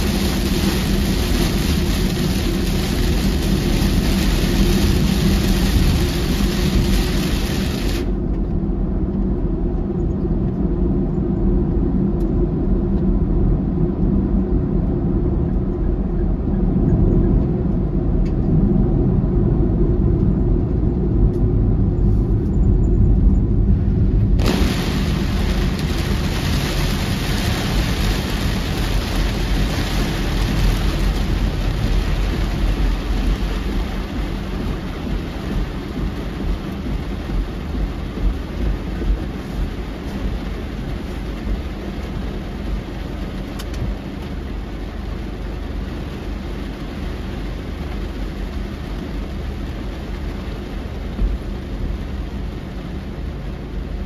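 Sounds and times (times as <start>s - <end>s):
heavy rain drumming on car roof: 0.0s - 8.3s, 24.3s - 54.0s
tyre and road noise rumble: 0.0s - 54.0s.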